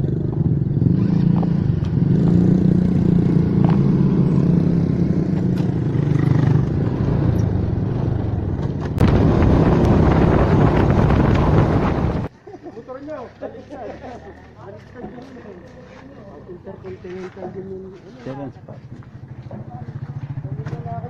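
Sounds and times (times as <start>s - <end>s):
motor scooter engines humming: 0.0s - 12.7s
rough riding noise: 0.0s - 21.0s.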